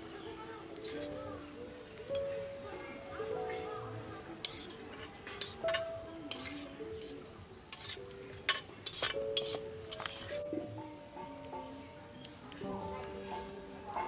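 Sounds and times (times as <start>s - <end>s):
soft background music: 0.0s - 14.0s
spatula scraping metal wok: 0.7s - 1.2s, 4.4s - 10.5s.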